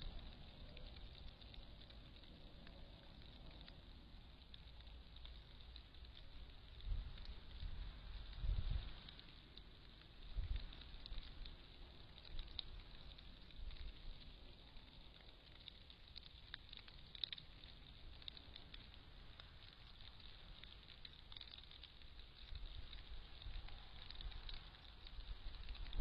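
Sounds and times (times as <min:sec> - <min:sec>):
microphone hiss: 0:00.0 - 0:14.8
faint ticks and crackles: 0:00.0 - 0:26.0.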